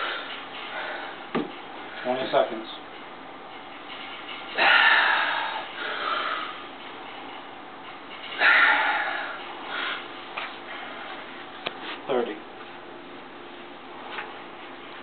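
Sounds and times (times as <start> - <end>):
man breathing forcefully: 0.0 - 2.0, 4.5 - 6.7, 8.3 - 11.2.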